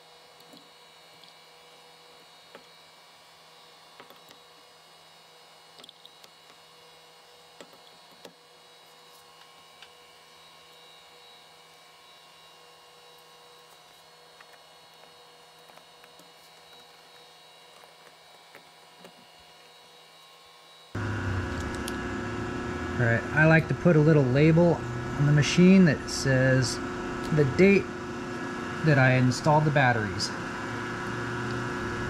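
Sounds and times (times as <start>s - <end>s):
machine humming: 0.0s - 32.0s.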